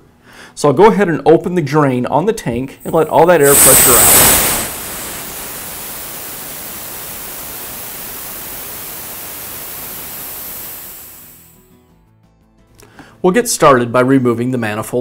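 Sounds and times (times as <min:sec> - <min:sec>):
compressed air hissing: 0:02.8 - 0:11.6.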